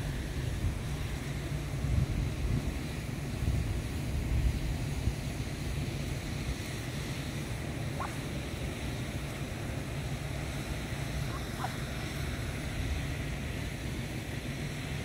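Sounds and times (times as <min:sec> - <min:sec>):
wind rumbling on microphone: 0:00.0 - 0:08.4.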